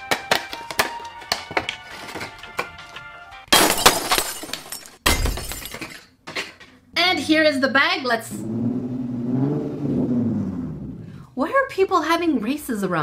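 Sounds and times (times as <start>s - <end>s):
background music: 0.0s - 3.6s.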